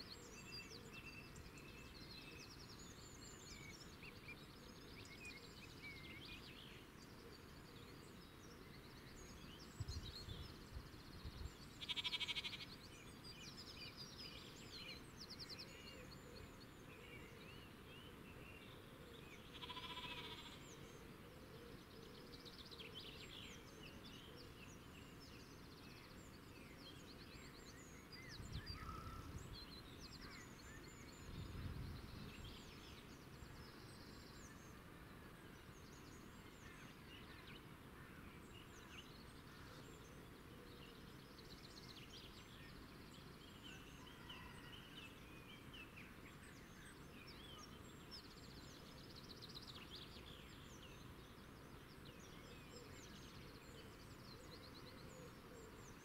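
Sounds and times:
small birds chirping: 0.0 - 20.8.

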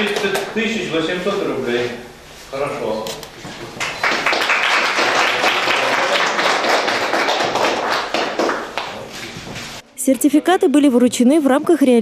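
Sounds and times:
audience applauding: 3.8 - 9.0.

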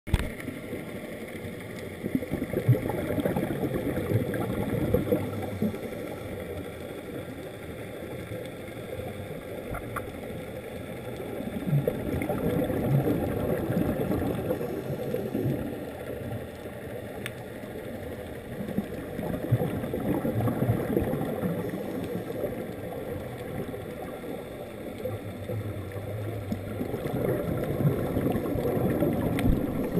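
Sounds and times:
underwater regulator bubbling: 1.9 - 6.6, 11.1 - 16.4, 18.5 - 29.9.

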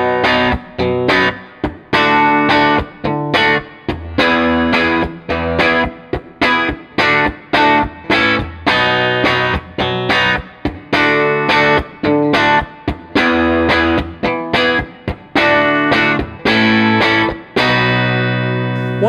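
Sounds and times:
electric guitar picked chords: 0.0 - 19.0.

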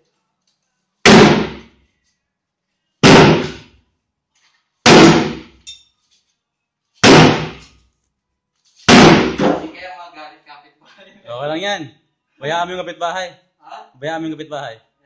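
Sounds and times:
sledgehammer striking iron bathtub: 1.1 - 1.7, 3.0 - 3.7, 4.8 - 5.6, 7.0 - 7.6, 8.9 - 9.7.

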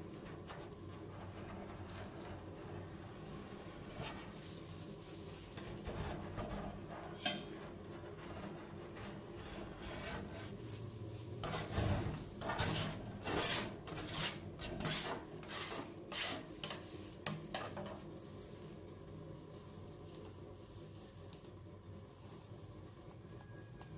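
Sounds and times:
metal spatula scraping steel plate: 5.6 - 10.6, 11.4 - 18.0.

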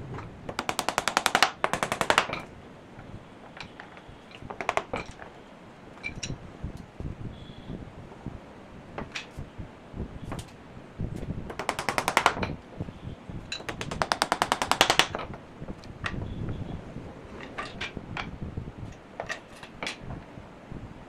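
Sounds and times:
woodworking tool clicking rapidly: 0.5 - 2.3, 11.5 - 12.4, 13.6 - 15.2.

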